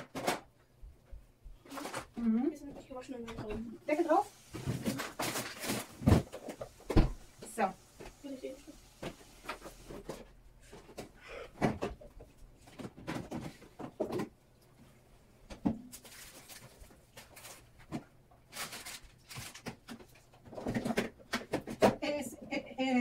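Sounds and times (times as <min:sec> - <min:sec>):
rustling: 0:04.4 - 0:06.7, 0:15.9 - 0:20.9
plastic containers knocking: 0:10.8 - 0:14.4, 0:19.6 - 0:22.1.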